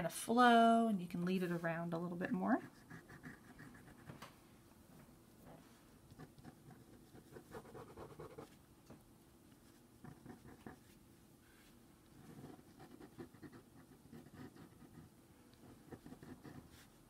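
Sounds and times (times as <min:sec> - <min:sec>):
pen scratching on paper: 0:02.6 - 0:04.1, 0:06.1 - 0:08.6, 0:09.6 - 0:11.0, 0:12.1 - 0:17.0.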